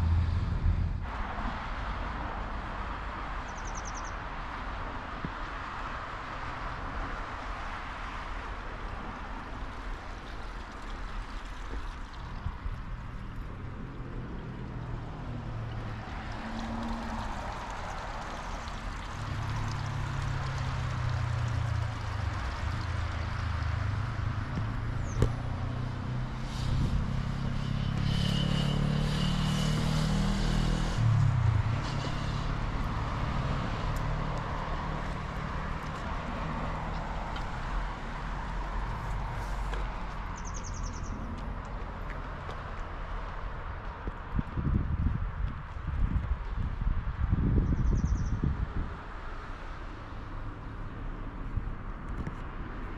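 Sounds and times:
vehicle engine passing by: 0.0s - 1.8s, 11.3s - 43.8s
outdoor background noise: 0.0s - 52.9s.

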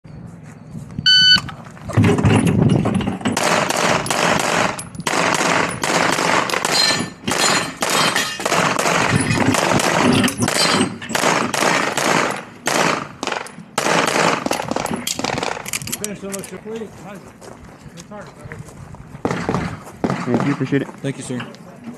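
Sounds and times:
shot timer beep: 1.0s - 1.5s
pistol firing rapid shots: 3.4s - 15.6s, 19.2s - 20.6s.

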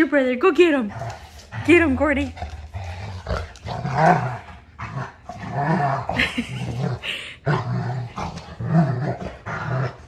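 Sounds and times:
dog play-growling: 0.8s - 10.0s.

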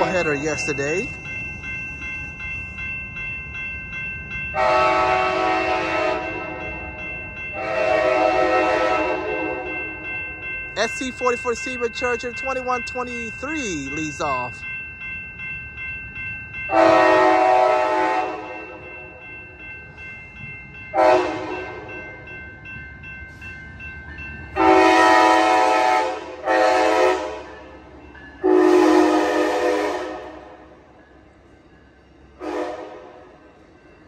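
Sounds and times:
crossing bells ringing: 0.0s - 34.0s
train rumbling: 0.0s - 34.0s
train horn blasts: 4.6s - 6.6s, 7.6s - 9.8s, 16.7s - 18.8s, 20.9s - 21.8s, 24.6s - 27.6s, 28.4s - 30.6s, 32.4s - 33.3s.

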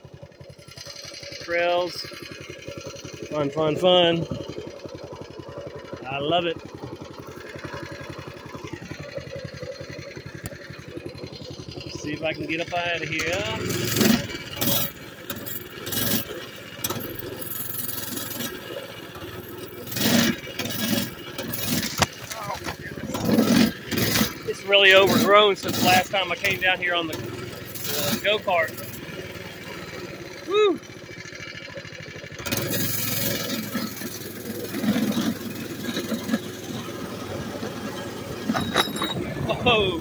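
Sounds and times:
small bike engine under load: 0.0s - 40.0s
brush scraping against bike: 19.9s - 26.6s.

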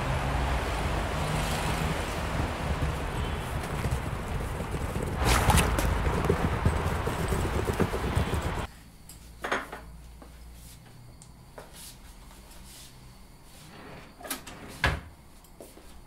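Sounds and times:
street noise: 0.0s - 8.7s
wheeled suitcase rattling: 2.1s - 8.7s
footsteps on pavement: 2.4s - 8.7s.

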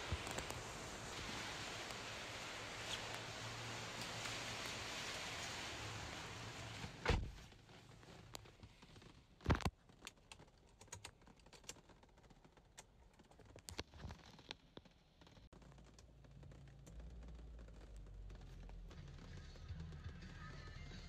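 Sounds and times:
steady hiss: 0.0s - 7.1s.

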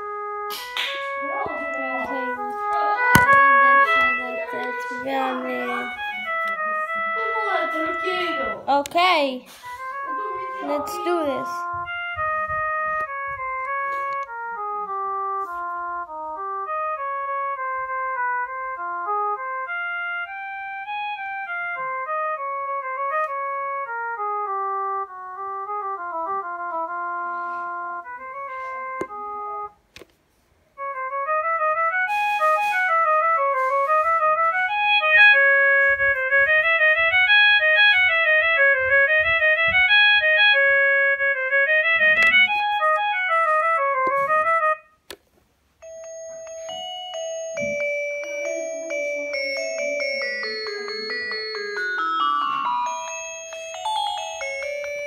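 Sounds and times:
electronic ringtone melody: 1.2s - 8.8s, 9.7s - 15.4s, 17.8s - 22.6s, 24.8s - 29.8s, 31.4s - 44.9s, 45.8s - 55.0s
phone clicks: 3.2s - 3.6s.

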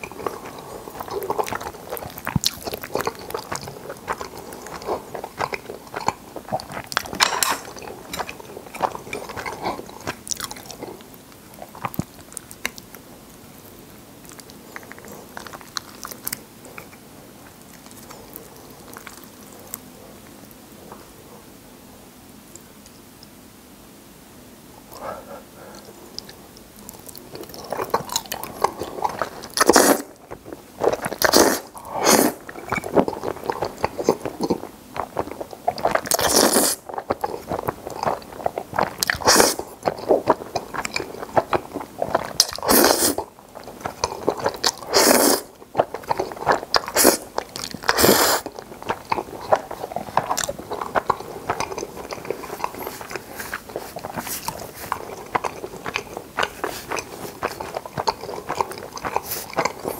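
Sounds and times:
wet chewing: 0.0s - 20.6s, 25.6s - 59.9s
noodles being slurped: 27.5s - 59.9s.

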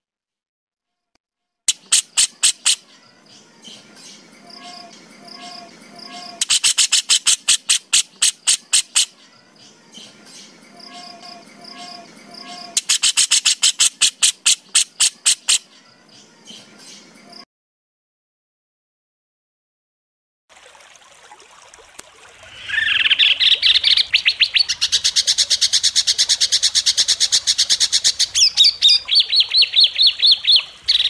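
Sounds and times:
soft bird chirps and whistles: 1.7s - 17.4s, 26.7s - 31.0s
songbird rapid-fire call: 1.7s - 17.4s, 22.5s - 31.0s.

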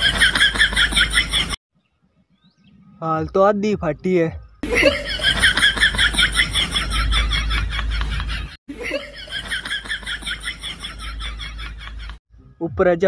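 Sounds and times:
canned laughter: 0.0s - 1.6s, 4.6s - 12.2s.

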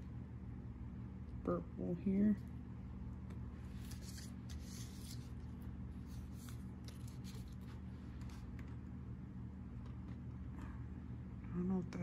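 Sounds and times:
low room hum: 0.0s - 12.0s
faint scratching and handling: 3.4s - 8.8s.

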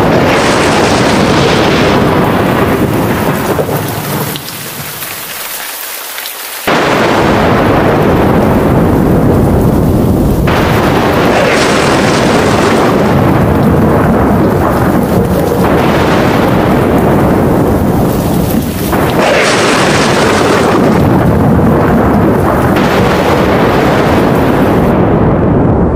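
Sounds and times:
rolling thunder: 0.0s - 5.5s, 6.6s - 25.9s
heavy rain: 0.0s - 25.9s.

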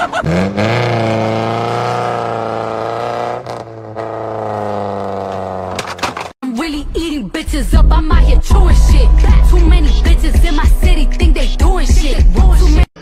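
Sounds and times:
car engine revving: 0.0s - 6.2s.

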